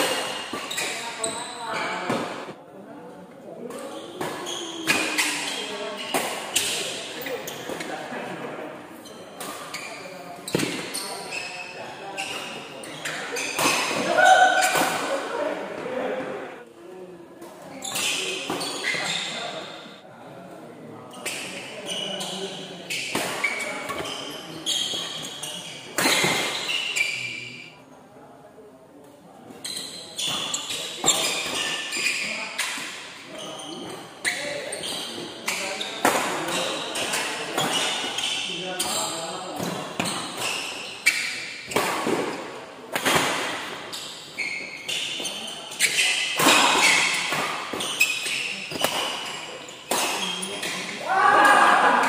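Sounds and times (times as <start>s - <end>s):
shoes squeaking on court floor: 0.0s - 2.6s, 3.6s - 16.6s, 17.6s - 20.0s, 21.1s - 27.8s, 29.4s - 51.0s
rackets hitting shuttlecock: 13.0s - 15.3s, 44.9s - 52.0s.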